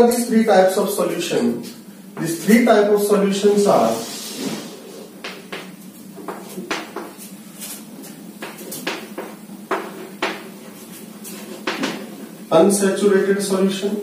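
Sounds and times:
chalk tapping and scraping on chalkboard: 0:03.9 - 0:12.3.

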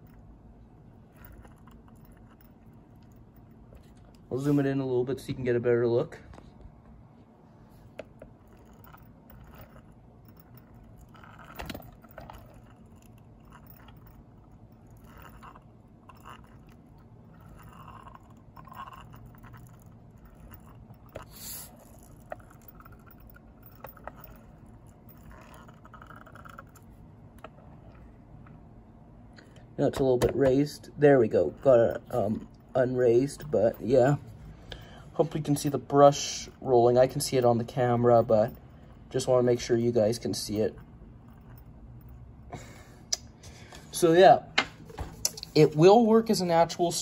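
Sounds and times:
toy wheels scraping: 0:08.4 - 0:26.8.

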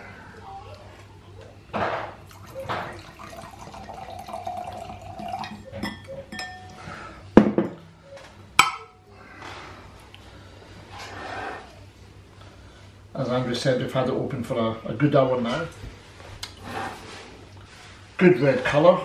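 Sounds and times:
wine pouring into glass: 0:02.2 - 0:06.8
glass clinks: 0:03.8 - 0:06.8
glass knocking on worktop: 0:07.4 - 0:07.8.

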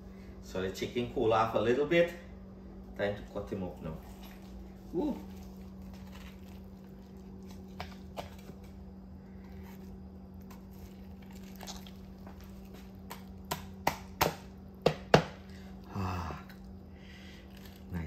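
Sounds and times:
knife chopping on cutting board: 0:13.0 - 0:15.4.

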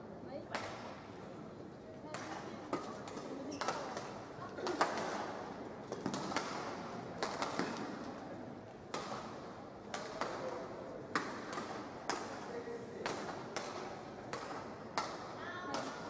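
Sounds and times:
rackets striking shuttlecock: 0:05.9 - 0:08.0, 0:08.9 - 0:16.0.

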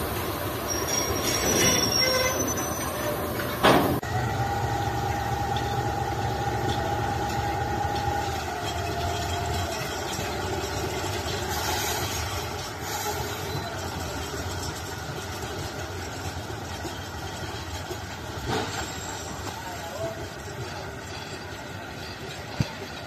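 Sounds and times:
wheel squeal: 0:00.0 - 0:04.1, 0:05.1 - 0:23.0
locomotive engine rumbling: 0:00.0 - 0:23.0.

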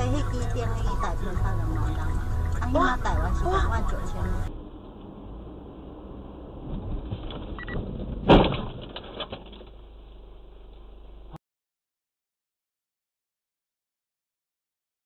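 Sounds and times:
car engine and road noise: 0:00.0 - 0:11.4
car crash bang: 0:06.6 - 0:10.0
rattling: 0:06.6 - 0:11.0.

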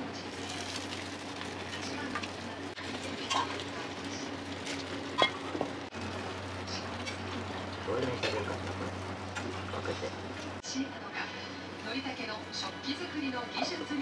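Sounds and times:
egg sizzling in a pan: 0:00.0 - 0:09.6.

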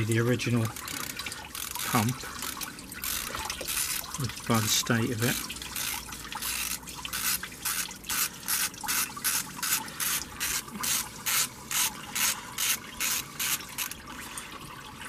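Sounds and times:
ratchet wrench clicking: 0:00.7 - 0:04.0, 0:05.7 - 0:14.0.

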